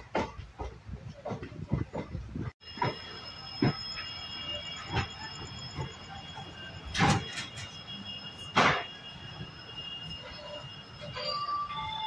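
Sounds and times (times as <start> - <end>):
train rumble: 0.0 - 12.0
train wheels squealing: 2.6 - 12.0.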